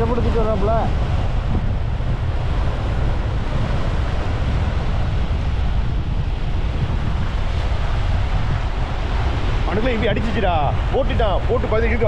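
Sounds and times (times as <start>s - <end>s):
surf breaking on a beach: 0.0s - 12.0s
wind buffeting the microphone: 0.0s - 12.0s.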